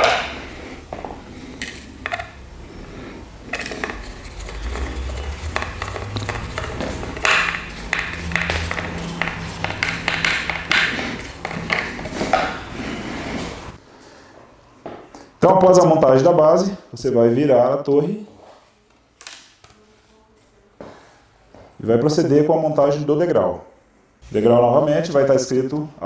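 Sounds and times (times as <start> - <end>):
low steady hum: 0.0 - 13.9.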